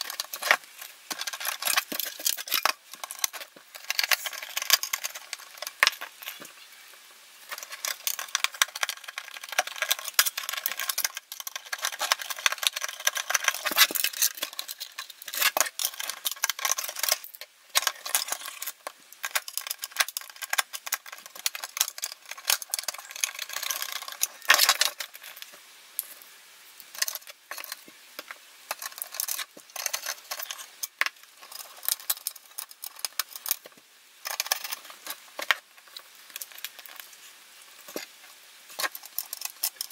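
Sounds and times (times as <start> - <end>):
screws and screwdriver clicking on metal: 7.5 - 25.5.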